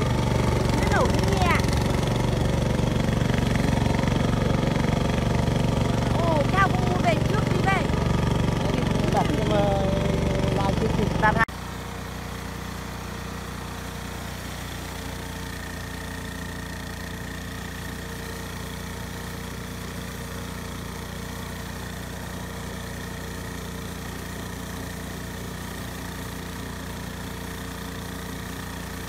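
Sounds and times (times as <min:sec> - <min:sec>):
combine harvester engine drone: 0:00.0 - 0:29.0.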